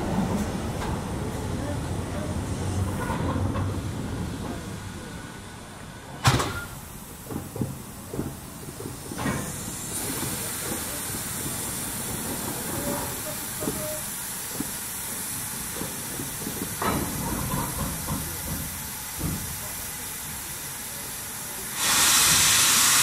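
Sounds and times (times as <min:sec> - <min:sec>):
rush of steam: 0:00.0 - 0:23.0
steam hissing: 0:06.4 - 0:23.0.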